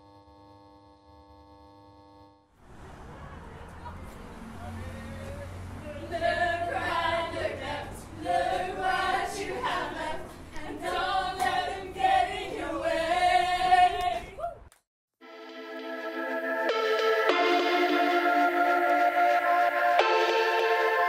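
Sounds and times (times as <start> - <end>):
group singing and whooping: 5.8 - 14.7
sustained electronic chord: 15.2 - 21.0.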